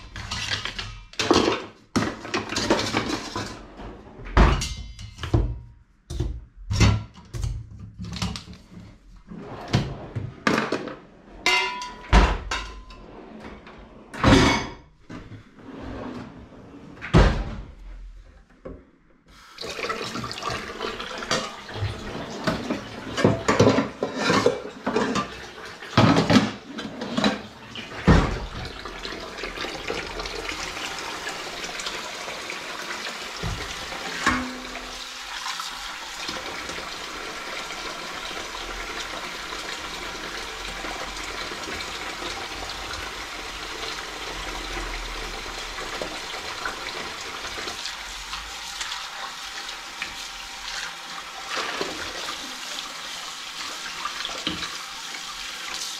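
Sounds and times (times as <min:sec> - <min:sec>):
dishes and pots clattering: 0:00.1 - 0:03.7, 0:04.4 - 0:08.4, 0:10.4 - 0:13.1, 0:14.2 - 0:14.8, 0:21.2 - 0:28.6, 0:33.4 - 0:35.0
dishes clinking: 0:11.4 - 0:13.0
tap water running into sink: 0:19.4 - 0:55.9.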